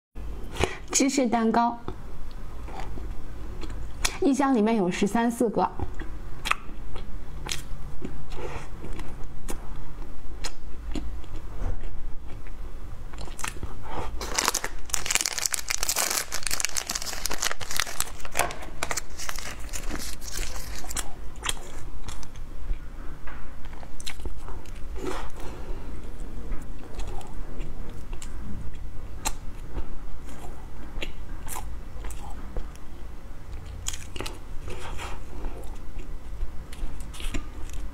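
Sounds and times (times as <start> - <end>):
chewing with wet clicks: 5.9 - 13.7
plastic wrapper crinkling: 14.2 - 21.0.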